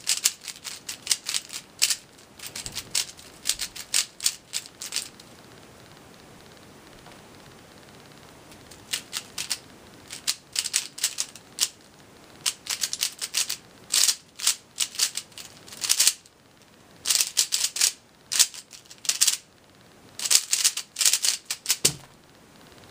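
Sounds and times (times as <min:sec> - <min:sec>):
puzzle cube plastic clicking: 0:00.0 - 0:05.3, 0:08.6 - 0:11.8, 0:12.4 - 0:16.3, 0:17.0 - 0:19.4, 0:20.2 - 0:22.0.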